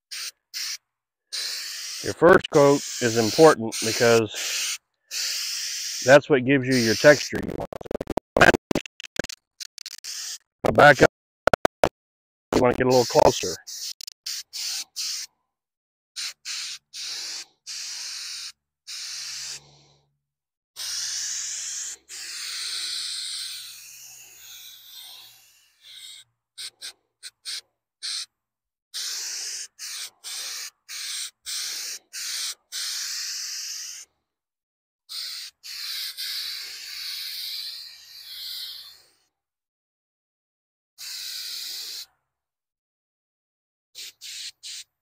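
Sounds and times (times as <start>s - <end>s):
coating spray hissing bursts: 0.1s - 7.2s, 10.0s - 10.4s, 12.9s - 15.3s, 16.2s - 19.7s, 20.8s - 28.2s, 29.0s - 34.0s, 35.1s - 38.8s, 41.0s - 42.0s, 44.0s - 44.8s.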